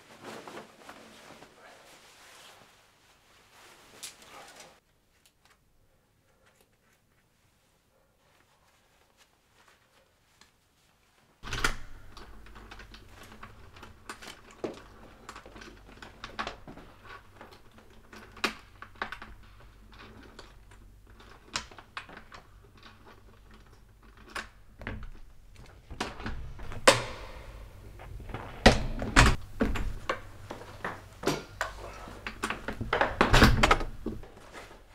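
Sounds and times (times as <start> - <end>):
steady low hum: 26.2 - 33.0.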